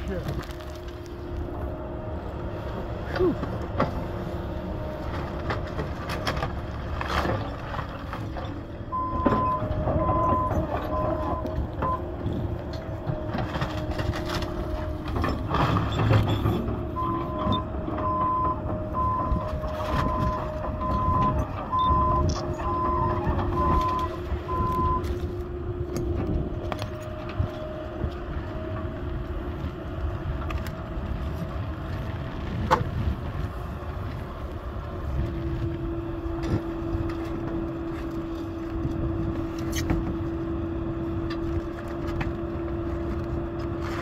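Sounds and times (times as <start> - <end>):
excavator diesel engine running: 0.0 - 44.0
travel alarm beeping: 8.9 - 12.1, 16.9 - 25.1.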